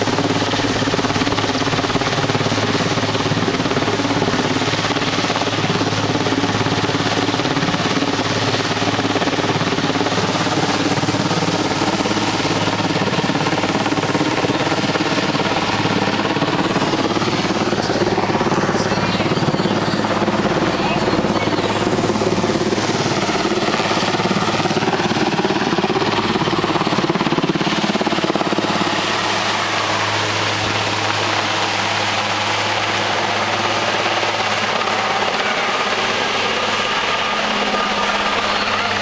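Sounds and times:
helicopter rotor beat: 0.0 - 39.0.

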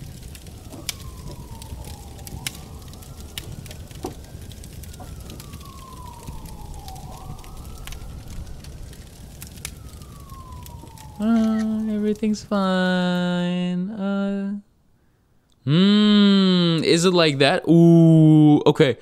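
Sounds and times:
low rumble of burning car: 0.0 - 13.0
siren wailing: 0.0 - 13.4
fire crackling: 0.0 - 13.9, 14.8 - 17.5.

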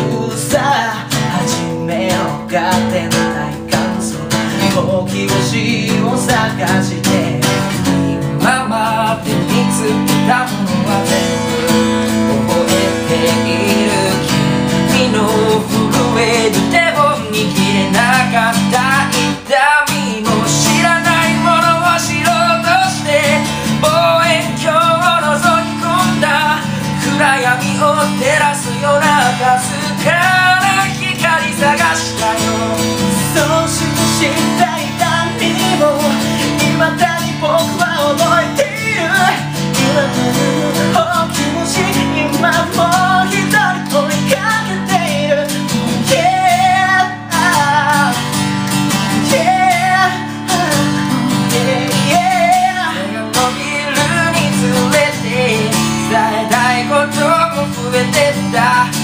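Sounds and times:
acoustic guitar strumming: 0.0 - 59.0
man singing: 0.0 - 59.0.

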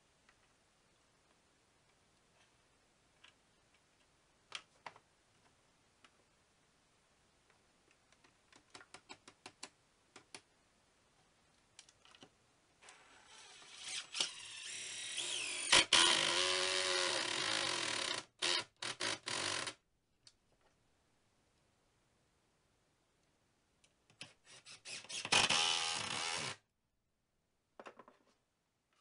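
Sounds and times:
cordless drill driving screw: 13.0 - 19.7, 24.5 - 26.6.

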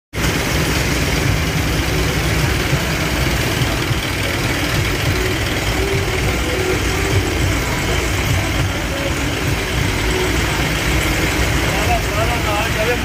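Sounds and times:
truck engines idling in traffic: 0.1 - 13.0.

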